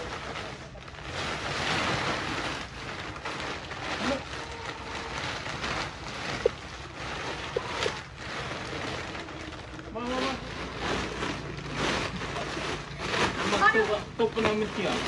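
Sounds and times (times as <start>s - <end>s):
plastic tarpaulin rustling: 0.0s - 15.0s.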